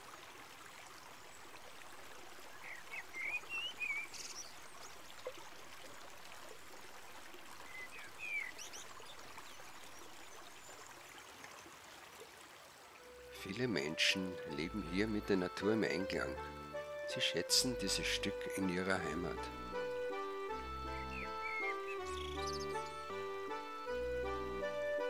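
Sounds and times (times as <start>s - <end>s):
small bird chirping: 21.0s - 22.9s.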